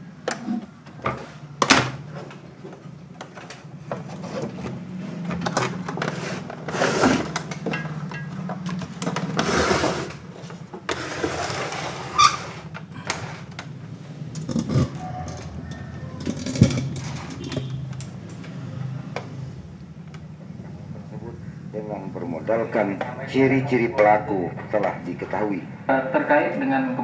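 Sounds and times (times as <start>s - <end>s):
clicks and knocks of handling: 0.2s - 9.4s, 14.3s - 19.3s.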